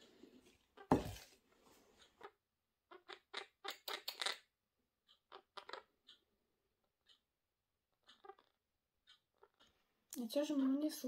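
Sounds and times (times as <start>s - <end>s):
parrot chirping: 2.1s - 4.5s, 5.2s - 6.2s, 7.9s - 9.9s.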